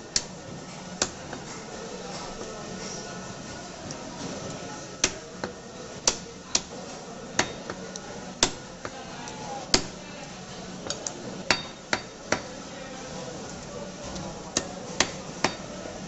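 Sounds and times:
steady background noise: 0.0 - 16.0
cleaver chopping chicken: 5.0 - 9.0, 9.7 - 10.0, 14.5 - 15.7.

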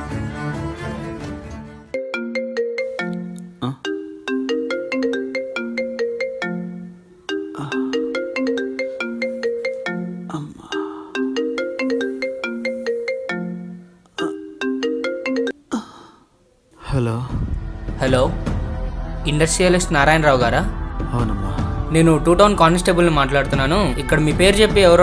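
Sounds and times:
phone ringtone melody: 2.0 - 15.6.

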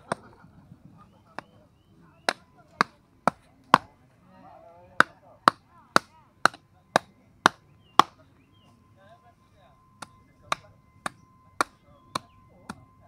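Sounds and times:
blade chopping meat and bone: 2.2 - 3.9, 5.0 - 8.2, 10.0 - 12.8.

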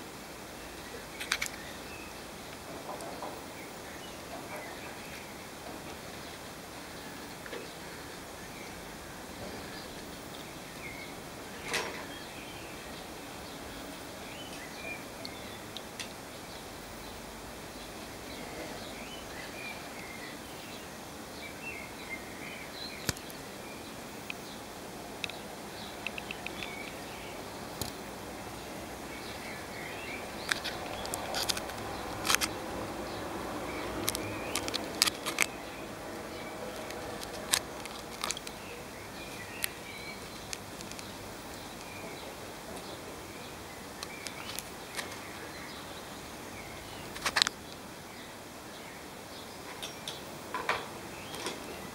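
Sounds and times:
outdoor background hiss: 0.0 - 51.9
sharp clicks: 26.0 - 27.0, 30.4 - 32.6, 33.7 - 35.7.

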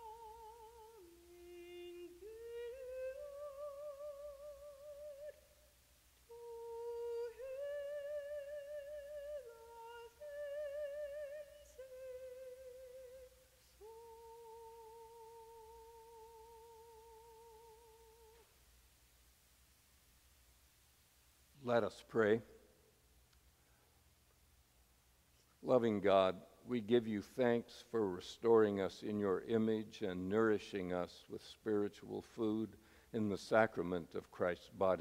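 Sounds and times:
woman singing unaccompanied: 0.0 - 5.6, 6.2 - 18.5.

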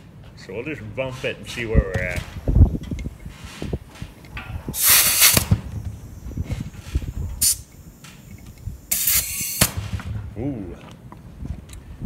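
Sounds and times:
compressed air hissing: 2.3 - 10.1.

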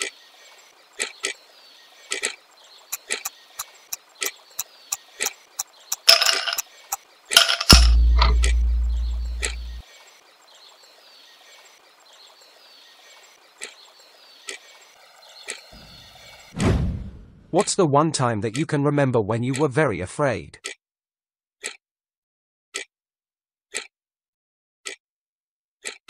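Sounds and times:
countdown timer ticking: 7.8 - 9.8
deep low boom: 7.8 - 9.8.

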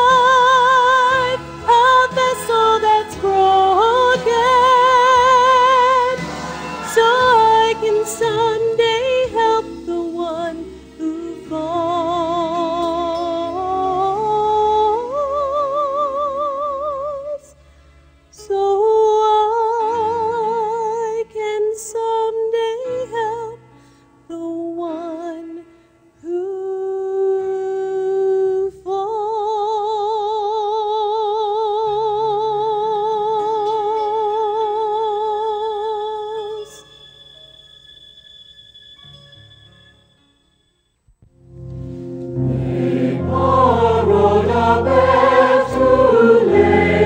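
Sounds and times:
woman singing gospel ballad: 0.0 - 6.2, 6.9 - 17.4, 26.3 - 36.5
soft instrumental accompaniment: 0.0 - 47.0.

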